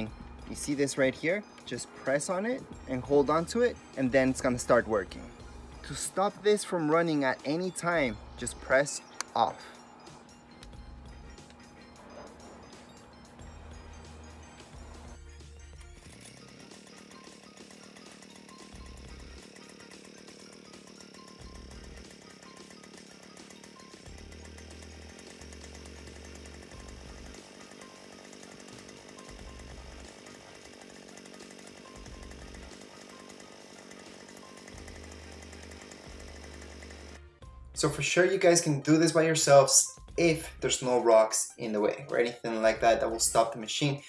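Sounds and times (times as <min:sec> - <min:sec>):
music with low bass notes: 0:00.0 - 0:00.8, 0:02.6 - 0:06.1, 0:10.1 - 0:16.6, 0:17.6 - 0:27.6, 0:28.7 - 0:30.2, 0:31.9 - 0:32.9, 0:34.3 - 0:38.0
background music with bass notes: 0:00.0 - 0:16.4, 0:29.3 - 0:30.1, 0:34.7 - 0:44.0
two-stroke engine running: 0:00.0 - 0:38.0.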